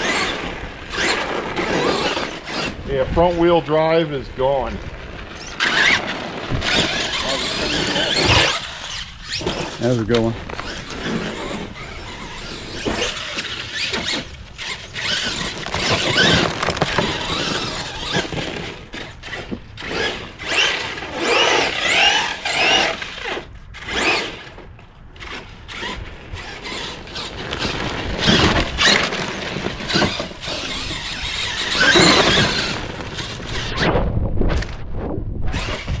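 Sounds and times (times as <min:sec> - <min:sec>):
electric motor whining: 0:05.4 - 0:24.6, 0:25.2 - 0:33.8.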